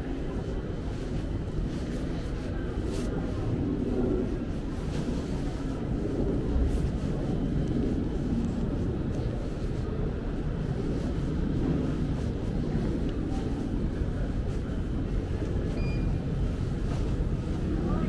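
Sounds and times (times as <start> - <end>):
city traffic rumble: 0.0 - 18.0.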